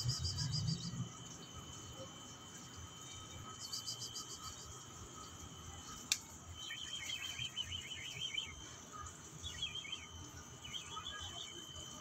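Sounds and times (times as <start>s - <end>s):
small birds twittering: 0.0s - 1.1s, 6.5s - 11.8s
faint high whine: 0.0s - 12.0s.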